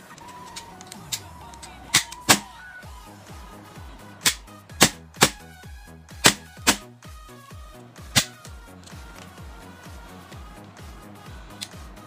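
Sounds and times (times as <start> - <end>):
background music: 0.0 - 12.0
pistol slide metal clicks: 0.2 - 2.5, 4.3 - 5.4.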